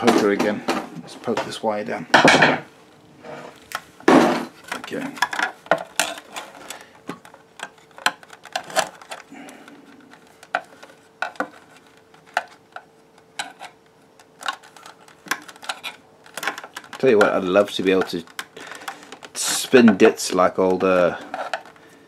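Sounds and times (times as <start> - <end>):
tool tapping plastic fan housing: 4.6 - 9.3, 10.0 - 21.8.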